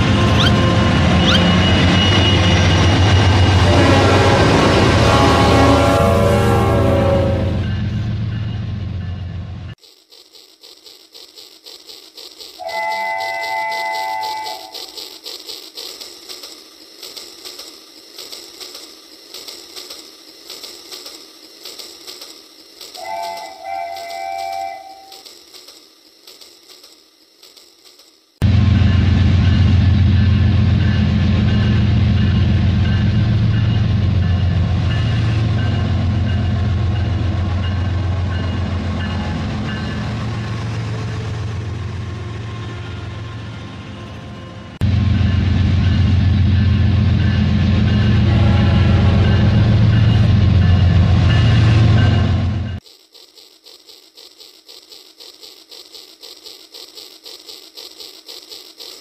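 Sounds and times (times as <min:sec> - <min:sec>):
toy train motor humming: 0:00.0 - 0:07.5, 0:09.7 - 0:28.4, 0:47.2 - 0:59.0.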